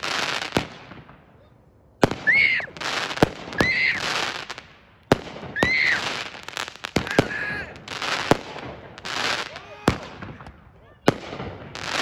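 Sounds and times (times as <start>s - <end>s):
fireworks bangs: 0.0s - 1.4s, 2.0s - 12.0s
fireworks crackling hiss: 0.0s - 12.0s
fireworks whistle: 2.0s - 4.4s, 5.4s - 8.4s.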